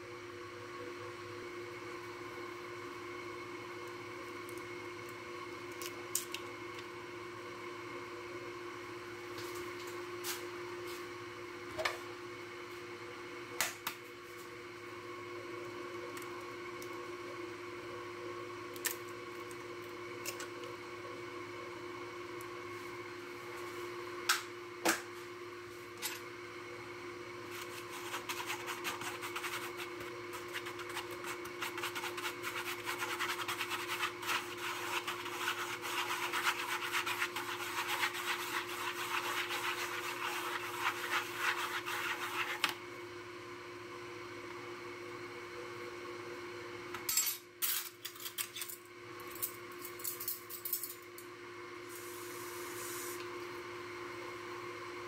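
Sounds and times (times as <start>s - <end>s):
steady background hum: 0.0s - 55.0s
fork scraping foam plate: 27.6s - 42.7s.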